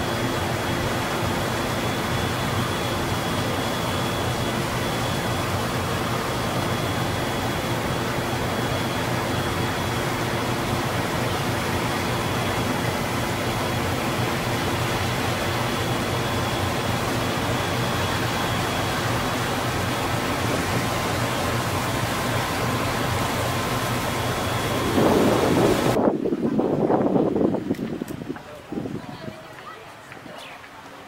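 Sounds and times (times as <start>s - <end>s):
rushing water: 0.0s - 26.0s
boat engine hum: 0.0s - 31.0s
wind: 0.0s - 31.0s.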